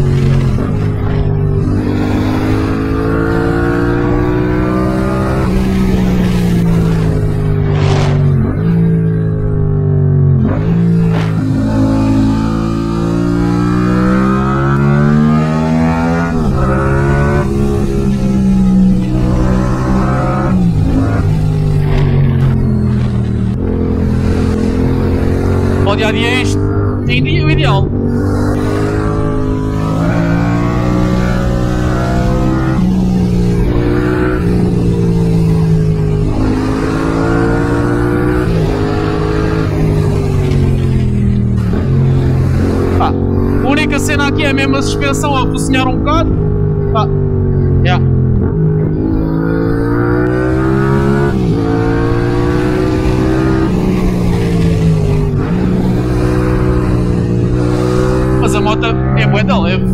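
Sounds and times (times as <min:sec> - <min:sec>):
motorcycle engine accelerating: 0:00.0 - 0:59.9.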